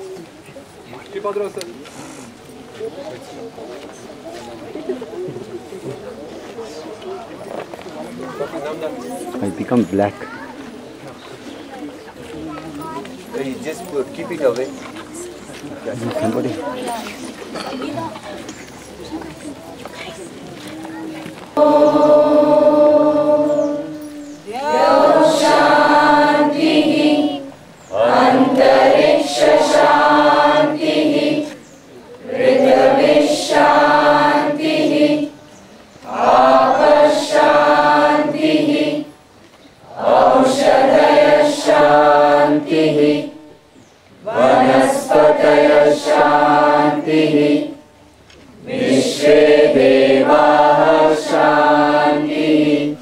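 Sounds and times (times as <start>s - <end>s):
group of voices chanting: 21.6s - 31.6s, 32.2s - 35.4s, 36.0s - 39.1s, 39.8s - 43.4s, 44.2s - 47.8s, 48.6s - 53.0s.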